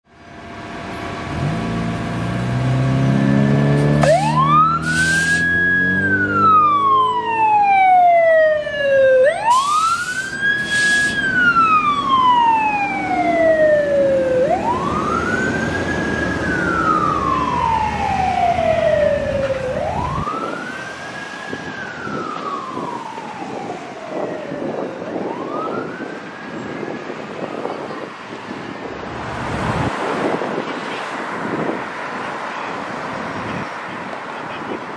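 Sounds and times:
mechanical siren winding: 4.1s - 5.6s.

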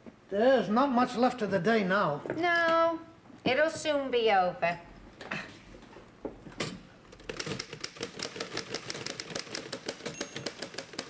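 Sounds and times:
typewriter key strikes clattering: 7.3s - 11.0s.

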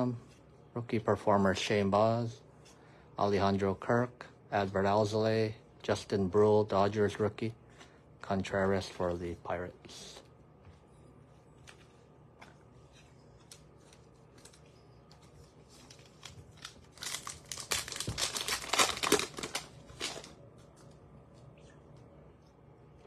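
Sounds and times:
cards rustling: 11.4s - 20.9s
wrapper torn and crinkled: 15.7s - 20.4s.

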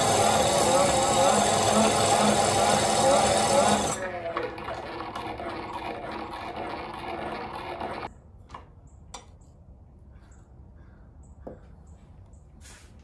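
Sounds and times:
bench grinder spinning down: 0.0s - 8.1s.

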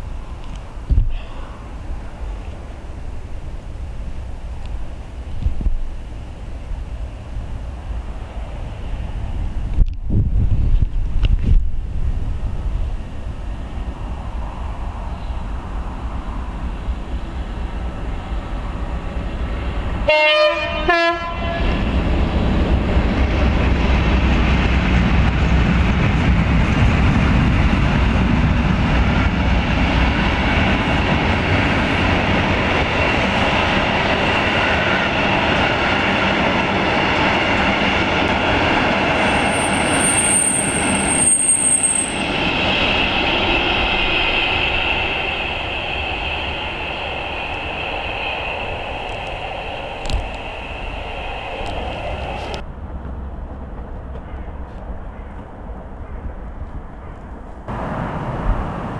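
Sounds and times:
locomotive horn blasts: 20.1s - 21.8s
diesel engines rumbling: 29.8s - 55.0s, 57.3s - 58.9s
high wheel squeal: 39.1s - 52.6s.

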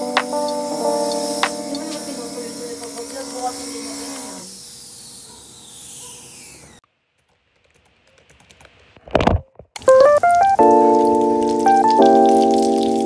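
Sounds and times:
chill beat music: 0.0s - 3.5s, 9.8s - 13.0s
hiss: 0.0s - 6.8s.

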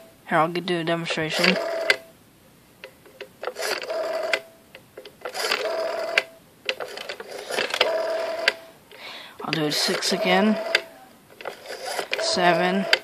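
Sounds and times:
dial spinning back with whirring buzz: 1.3s - 2.0s, 3.2s - 8.8s, 9.4s - 13.0s
rotary dial clicking: 1.4s - 2.0s, 2.8s - 8.6s, 9.4s - 13.0s.

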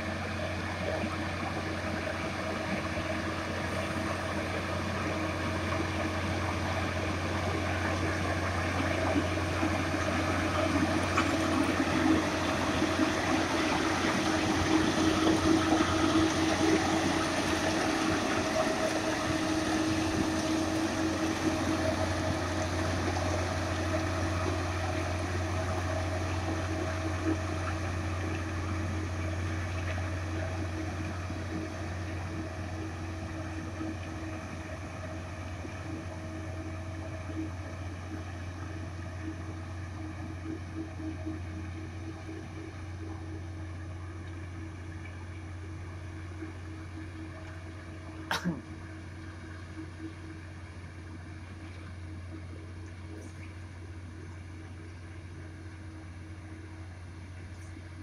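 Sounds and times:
diesel engine humming: 0.0s - 33.8s.

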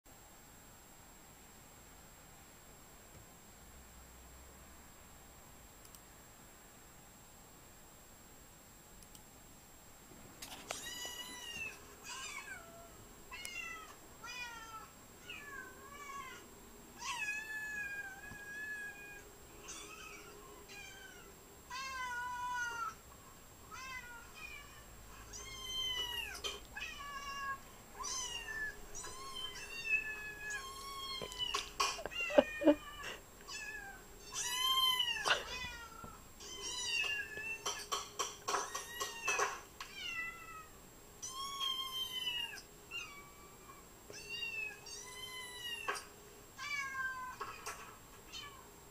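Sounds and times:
cats meowing through speakers: 23.7s - 37.8s.

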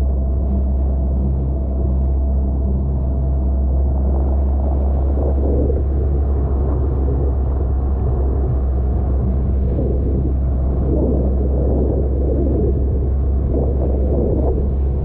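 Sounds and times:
outboard motor running: 0.0s - 15.0s
water rushing and splashing: 3.8s - 15.0s.

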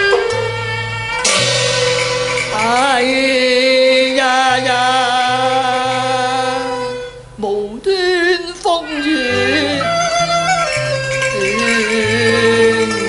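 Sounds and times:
accompanying ensemble: 0.0s - 6.8s
opera singing: 2.5s - 9.9s, 11.4s - 13.0s.

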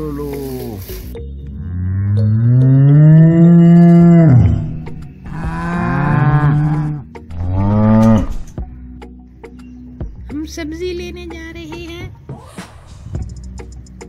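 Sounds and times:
cattle mooing: 1.5s - 8.6s.

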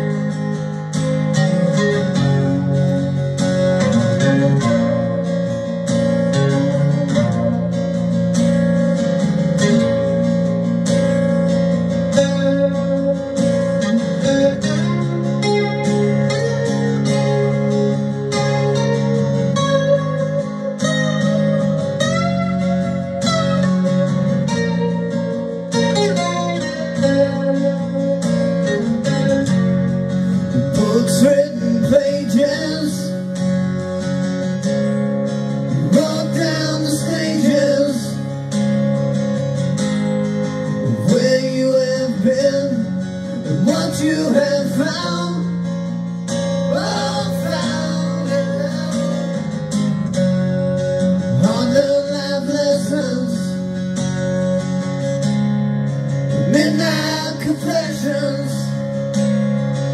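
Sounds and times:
recorded song with acoustic guitar: 0.0s - 59.9s.

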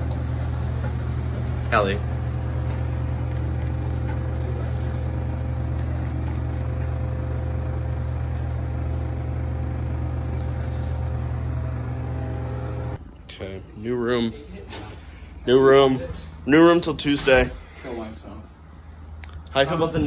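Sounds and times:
low mechanical drone: 0.0s - 13.8s.

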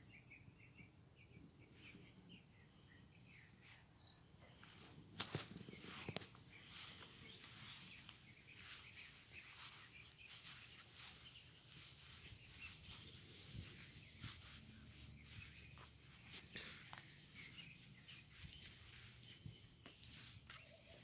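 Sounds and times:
small birds chirping: 0.0s - 21.0s
footsteps on grass and pavement: 4.4s - 21.0s.

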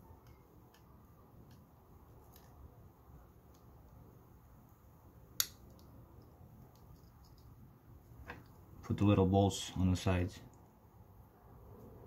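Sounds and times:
small clicks and taps: 0.2s - 2.6s, 5.4s - 7.6s.

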